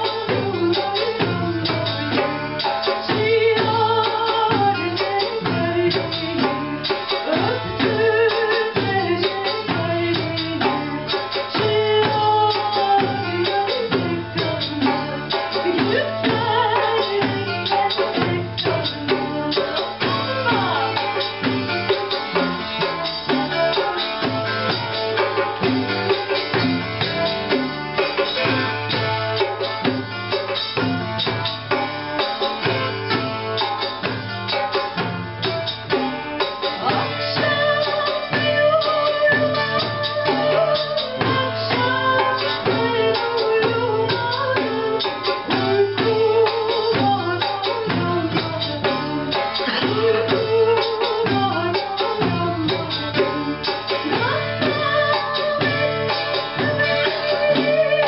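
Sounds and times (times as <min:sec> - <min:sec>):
darbuka drum rhythm: 0:00.0 - 0:58.0
frame drum: 0:00.0 - 0:58.0
woman singing: 0:00.0 - 0:58.0
plucked lute: 0:49.2 - 0:53.3.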